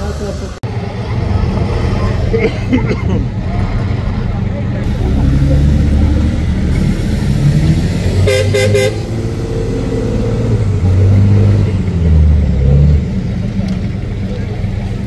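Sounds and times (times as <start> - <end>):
diesel truck engine revving: 0.0 - 15.0
horn toots: 6.9 - 9.6.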